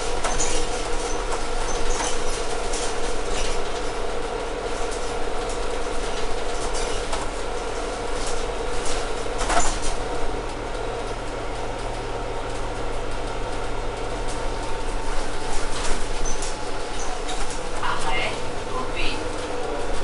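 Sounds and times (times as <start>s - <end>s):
bus drivetrain drone: 0.0s - 20.0s.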